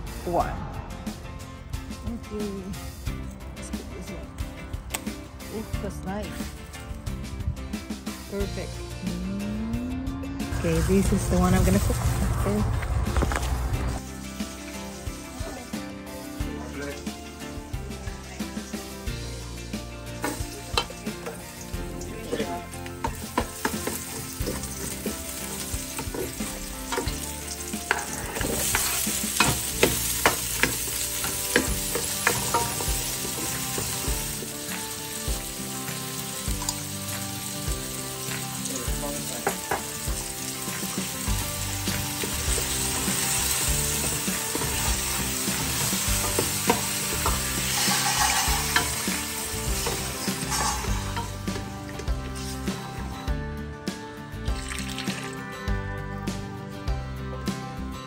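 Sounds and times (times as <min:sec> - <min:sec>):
food sizzling in a pan: 0:10.5 - 0:53.1, 0:54.4 - 0:55.4
spatula scraping and tapping pan: 0:27.8 - 0:34.0, 0:45.6 - 0:51.6
liquid poured into hot pan: 0:46.7 - 0:49.4, 0:50.3 - 0:51.4, 0:54.5 - 0:55.4.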